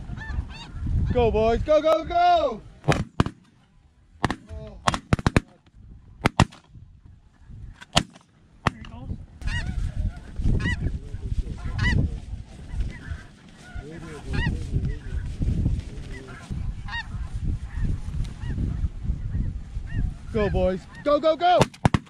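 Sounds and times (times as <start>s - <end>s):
geese honking: 0.0s - 1.2s, 9.4s - 10.9s, 11.5s - 15.3s, 16.0s - 22.0s
low wind rumble: 0.0s - 21.6s
shotgun shots: 2.8s - 3.5s, 4.2s - 5.6s, 6.2s - 6.7s, 7.8s - 8.9s, 21.6s - 22.0s.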